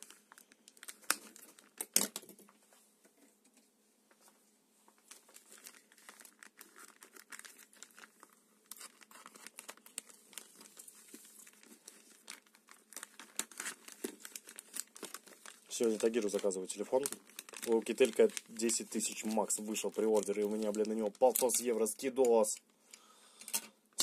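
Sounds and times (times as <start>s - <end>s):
plastic bag crinkling: 0.0s - 2.3s, 5.0s - 22.5s
scissors cutting plastic: 13.0s - 15.2s.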